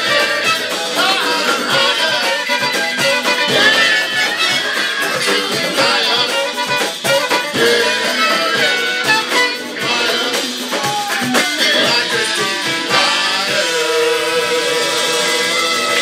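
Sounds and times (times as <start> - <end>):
electric guitar: 0.0 - 16.0
live band playing: 0.0 - 16.0
man singing wordless vocals: 0.1 - 2.8, 5.0 - 6.8, 7.5 - 15.4.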